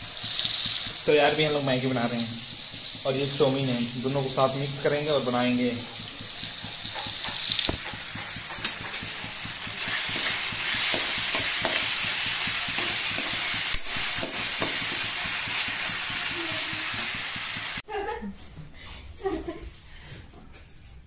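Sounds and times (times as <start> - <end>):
onions sizzling in hot oil: 0.0 - 17.8.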